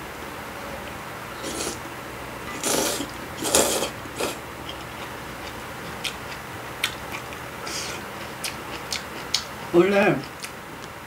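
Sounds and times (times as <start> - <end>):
noisy soup slurps: 1.4 - 1.8, 2.5 - 4.4.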